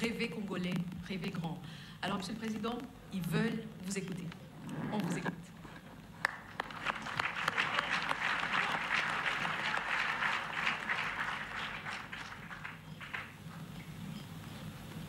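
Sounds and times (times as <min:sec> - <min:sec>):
audience applauding: 0:06.2 - 0:13.4.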